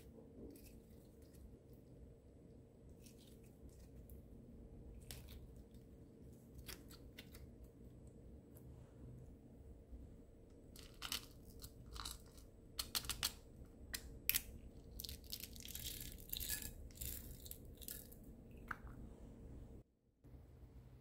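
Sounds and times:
plastic beads rattling: 0:15.0 - 0:18.2.

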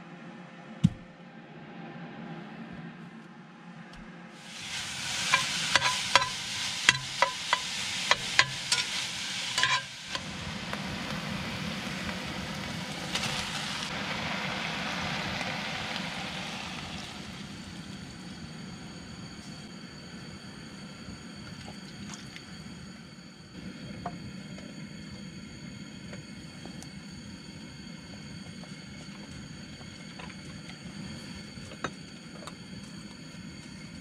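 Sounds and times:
food sizzling in a pot: 0:04.4 - 0:18.7.

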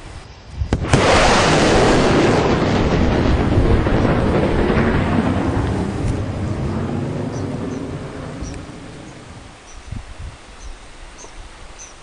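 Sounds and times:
thunder crack and rumble: 0:00.6 - 0:09.6.

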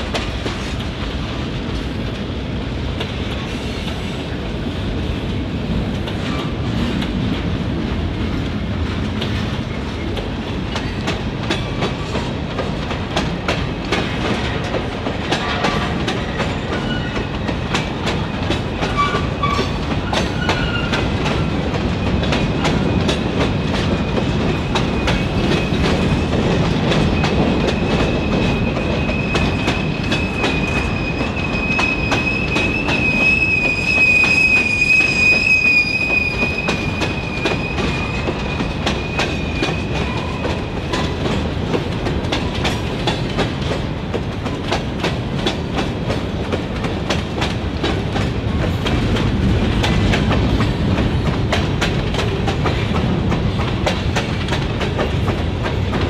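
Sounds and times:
high wheel squeal: 0:27.2 - 0:40.5.

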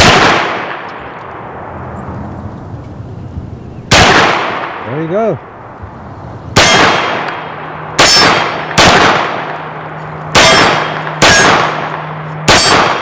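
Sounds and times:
pistol shots: 0:00.0 - 0:01.0, 0:03.9 - 0:04.8, 0:06.6 - 0:13.0
metallic clang of steel targets: 0:08.0 - 0:08.8, 0:10.3 - 0:13.0.

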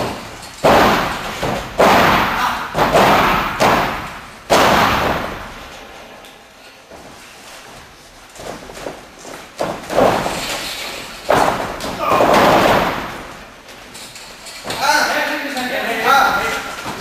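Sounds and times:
heavy thuds on wrestling mat: 0:00.0 - 0:05.6, 0:11.3 - 0:13.4.

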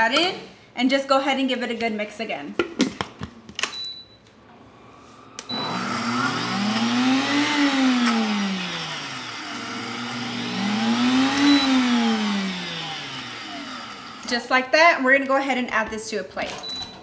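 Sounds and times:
blender motor grinding: 0:05.4 - 0:14.4.

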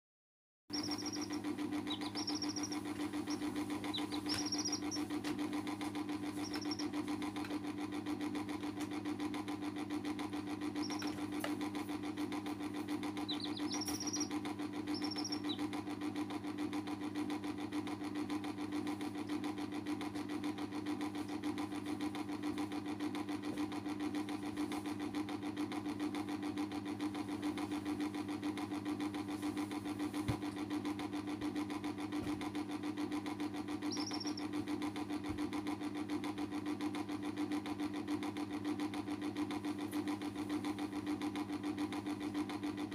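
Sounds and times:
chick peeps: 0:00.7 - 0:05.2, 0:05.8 - 0:07.3, 0:10.6 - 0:11.6, 0:12.3 - 0:16.3, 0:33.8 - 0:34.6
pulsing machine hum: 0:00.7 - 0:42.9.

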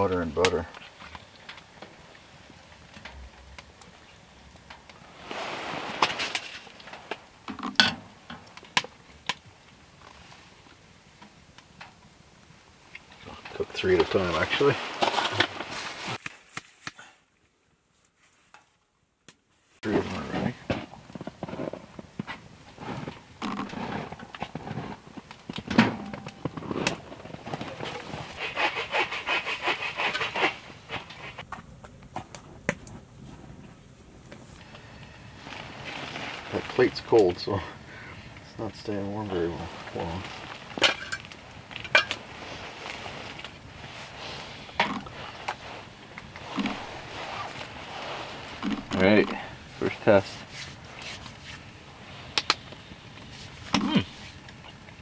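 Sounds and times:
quick scraping strokes: 0:28.1 - 0:31.4, 0:42.4 - 0:51.6.

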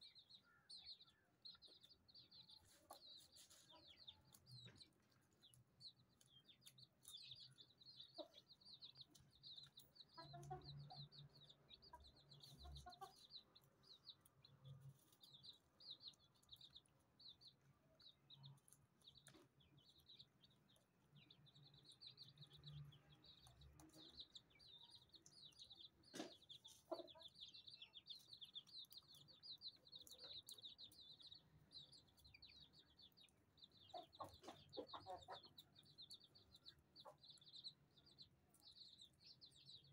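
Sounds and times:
chicks peeping: 0:00.0 - 0:39.9
hen clucking: 0:10.1 - 0:13.6, 0:26.1 - 0:28.0, 0:33.7 - 0:37.5.

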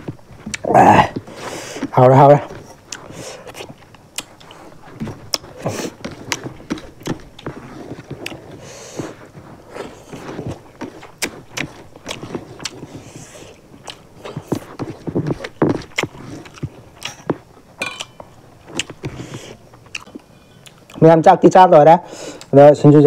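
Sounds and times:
fingers mixing rice on steel plates: 0:00.0 - 0:21.0
wet chewing and lip smacks: 0:02.8 - 0:17.4, 0:18.0 - 0:21.0.

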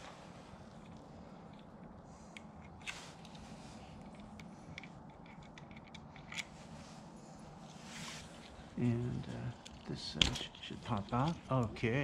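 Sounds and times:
hand tools clicking and scraping: 0:09.2 - 0:12.0.

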